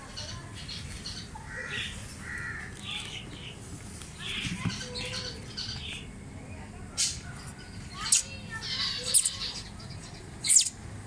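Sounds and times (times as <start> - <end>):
cockatiels harsh calls: 8.6 - 9.7.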